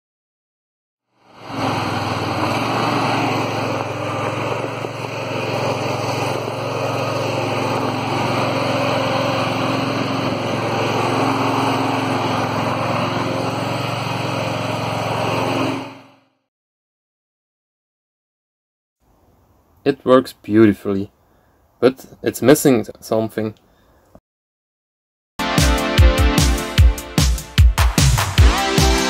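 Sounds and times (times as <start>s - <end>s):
tractor engine running: 1.2s - 16.2s.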